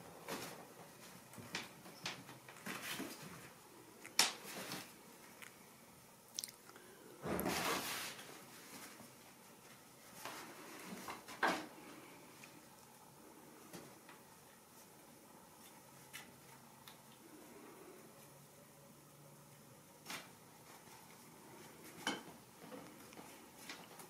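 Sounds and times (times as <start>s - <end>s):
kittens rustling fabric tunnel: 7.4s - 9.2s.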